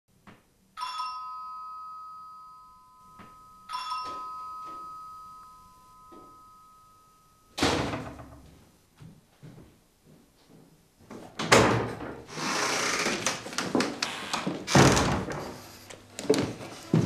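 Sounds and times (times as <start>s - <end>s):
bell-like chime notes: 0.8s - 7.6s.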